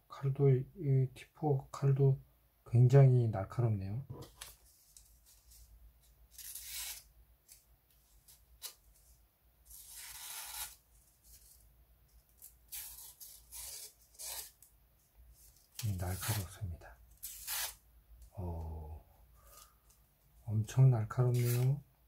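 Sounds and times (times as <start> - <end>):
knife slicing paper: 6.3 - 7.6, 9.7 - 11.6, 17.2 - 17.8.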